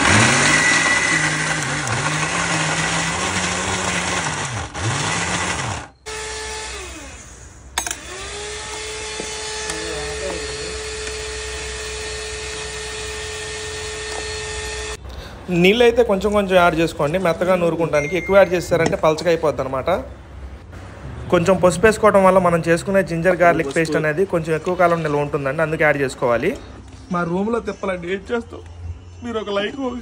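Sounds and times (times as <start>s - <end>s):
mixer grinder motor whir: 0.0s - 15.0s.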